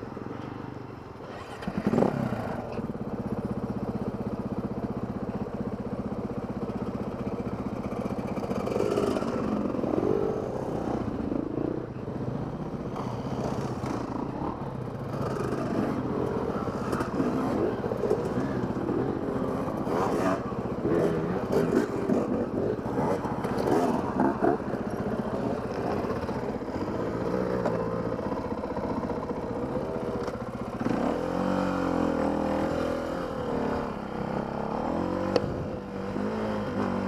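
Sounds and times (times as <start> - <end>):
dirt bike engine idling: 1.8 - 34.7
motorcycles revving past: 8.0 - 12.0, 12.6 - 37.0.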